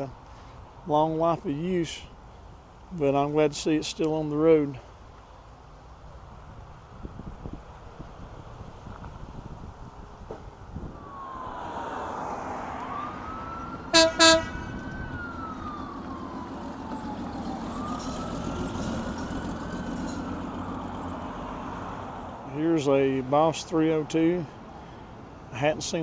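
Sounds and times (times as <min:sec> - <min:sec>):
low traffic rumble: 0:00.0 - 0:26.0
emergency vehicle siren wailing: 0:10.8 - 0:22.3
loud horn blasts: 0:13.9 - 0:14.7.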